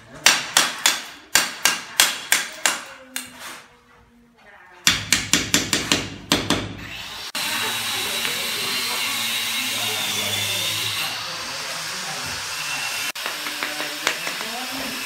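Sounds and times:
power tool whining: 6.9 - 15.0.

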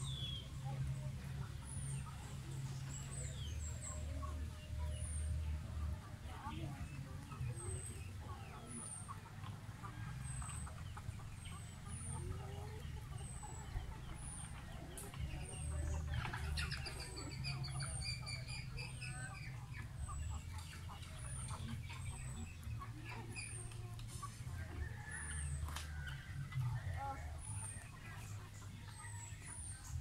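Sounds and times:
chickens clucking: 0.0 - 30.0.

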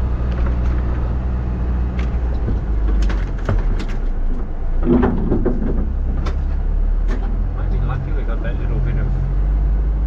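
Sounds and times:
truck knocks and rattles: 0.0 - 8.0
diesel truck engine running: 0.0 - 10.0.

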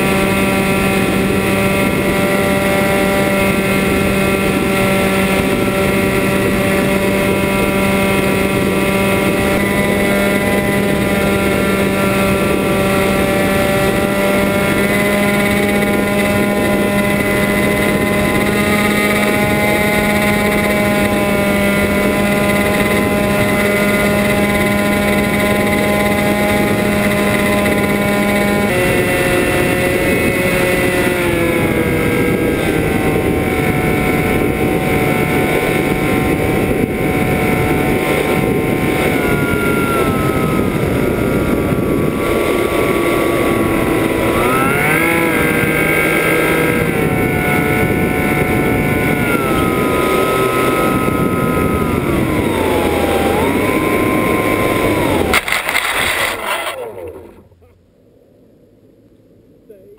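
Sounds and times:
drone motors whining: 0.0 - 57.9.

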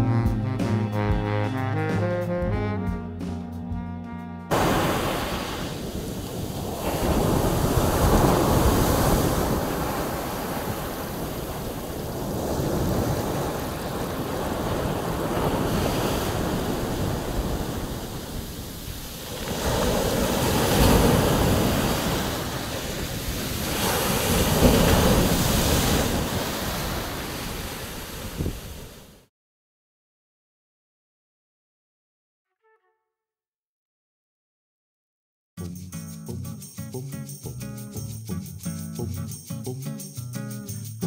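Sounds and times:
sea surf washing on beach: 4.5 - 29.3.

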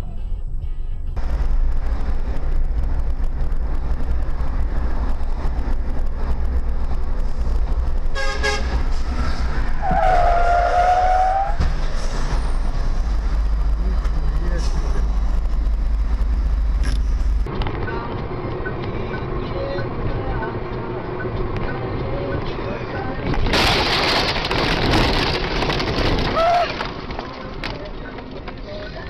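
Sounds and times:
road traffic rumble: 0.0 - 29.0
car horns honking: 8.1 - 8.8, 9.8 - 11.6.

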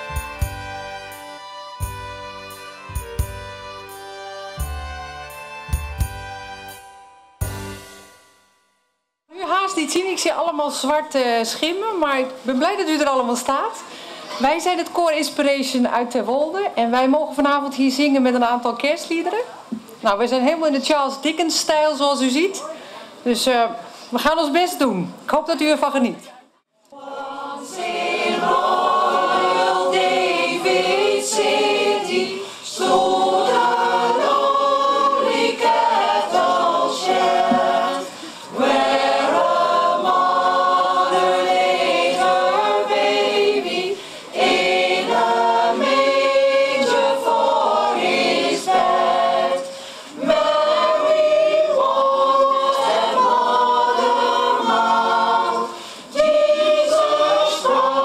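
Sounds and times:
mixed choir singing a cappella: 0.0 - 1.2, 26.9 - 58.0.

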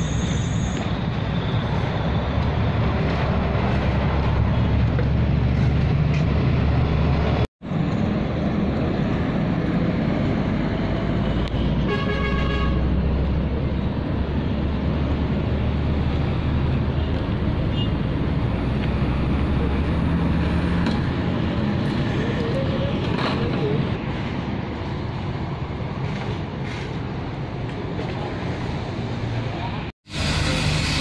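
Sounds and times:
traffic engine rumble: 0.0 - 31.0
vehicle horn: 11.8 - 12.9.

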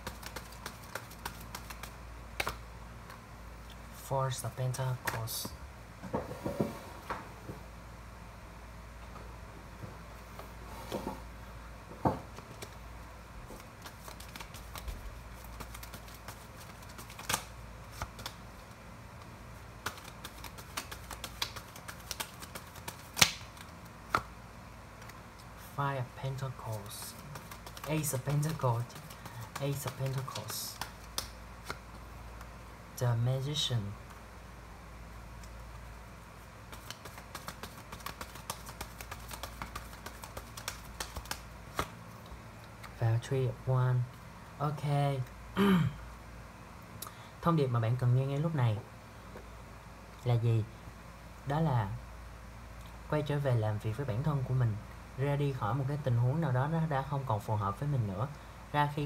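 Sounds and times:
cards shuffling and snapping: 0.0 - 3.2, 12.4 - 12.8, 13.5 - 24.3, 25.0 - 25.5, 26.7 - 32.5, 36.7 - 42.0.

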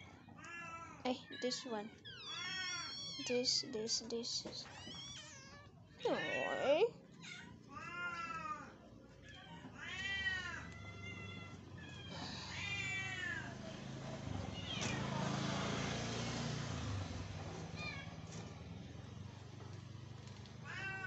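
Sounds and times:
kittens meowing: 0.4 - 3.6, 4.7 - 13.6, 14.5 - 15.1, 20.6 - 21.0.

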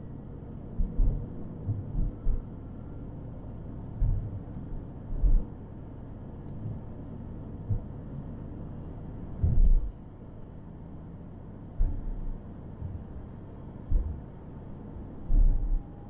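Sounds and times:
road rumble: 0.0 - 16.0
dull low thumps: 0.8 - 2.4, 4.0 - 4.4, 5.1 - 5.5, 9.4 - 10.0, 11.8 - 13.2, 13.8 - 14.3, 15.3 - 15.8.

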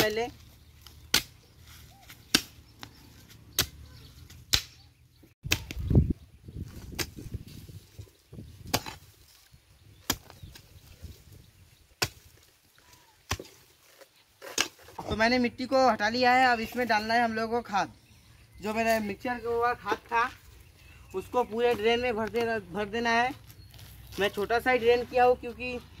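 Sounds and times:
soil scraping: 0.0 - 4.5, 6.6 - 15.4, 18.7 - 26.0
hoe chopping into soil: 0.8 - 4.8, 6.8 - 7.3, 8.6 - 9.4, 10.0 - 10.6, 12.0 - 12.5, 13.2 - 13.7, 14.4 - 15.1.

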